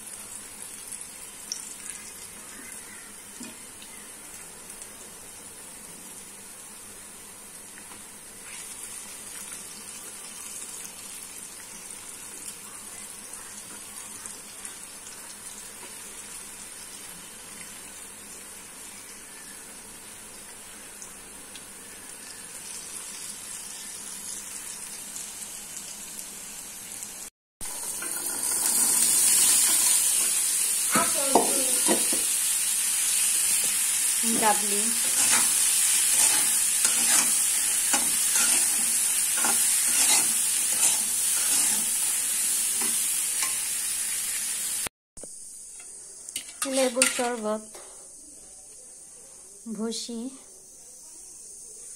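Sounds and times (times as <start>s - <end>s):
oil sizzling in a pan: 0.0s - 51.9s
food being stirred in a pan: 27.7s - 44.7s, 45.7s - 47.5s.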